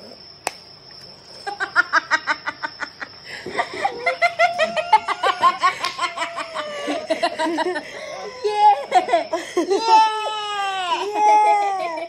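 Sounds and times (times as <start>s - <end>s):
women laughing hard: 1.4s - 12.0s.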